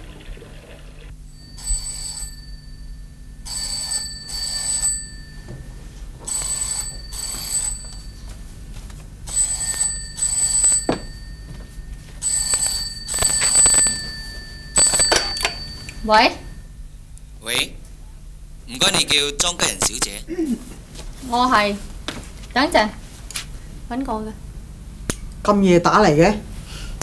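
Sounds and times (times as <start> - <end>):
telephone bell ringing: 1.3 - 16.8, 21.2 - 24.9.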